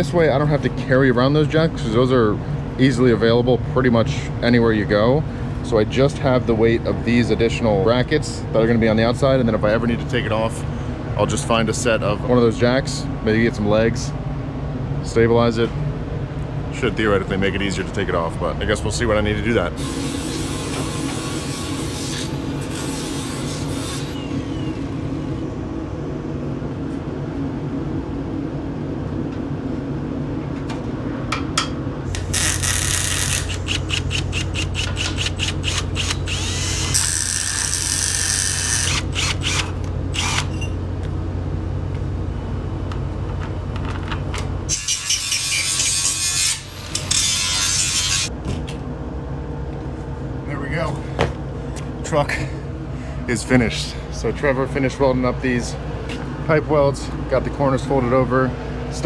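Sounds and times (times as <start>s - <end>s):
cordless drill running: 35.0s - 37.1s, 38.4s - 40.5s.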